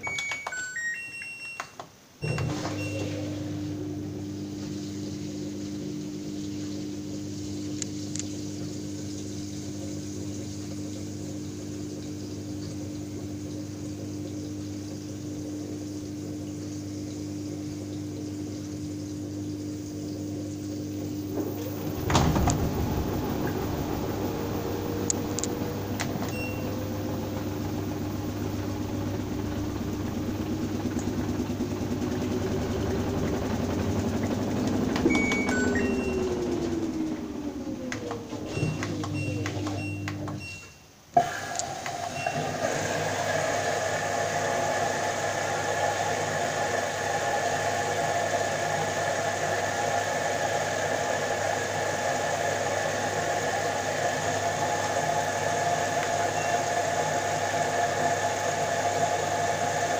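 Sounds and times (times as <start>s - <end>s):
washing machine humming: 0.0s - 59.9s
drum motor rumbling and whining: 21.2s - 40.4s.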